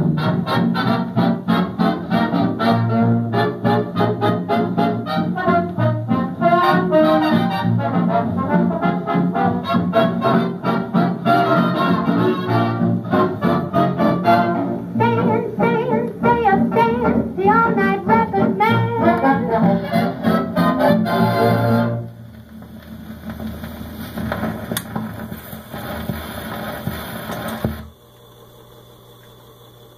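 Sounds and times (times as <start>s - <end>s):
big band brass music: 0.0s - 22.2s
record hiss: 0.0s - 29.9s.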